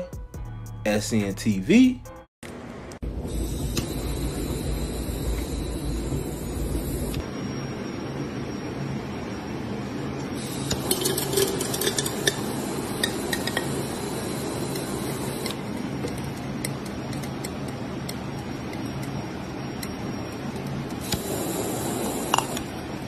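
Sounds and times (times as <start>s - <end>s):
torch lighter hissing: 3.2s - 7.2s, 10.4s - 15.8s, 20.9s - 22.9s.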